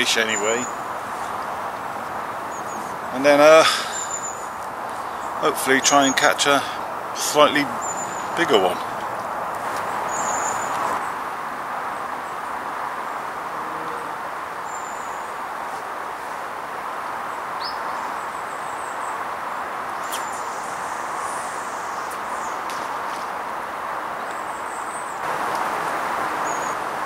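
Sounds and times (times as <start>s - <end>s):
small birds chirping: 0.0s - 11.2s, 17.2s - 26.9s
steady background hiss: 0.0s - 27.0s.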